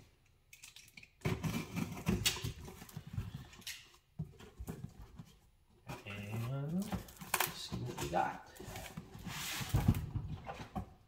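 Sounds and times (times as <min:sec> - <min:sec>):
cardboard scratching and rustling: 0:04.4 - 0:10.8.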